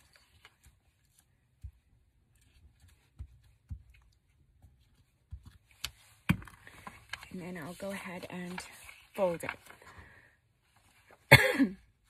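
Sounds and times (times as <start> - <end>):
paper handling: 4.8 - 10.0.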